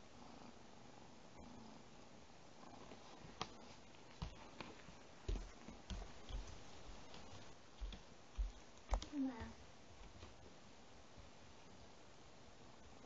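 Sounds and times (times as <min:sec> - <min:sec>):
bare footsteps on wooden floor: 0:03.3 - 0:10.4.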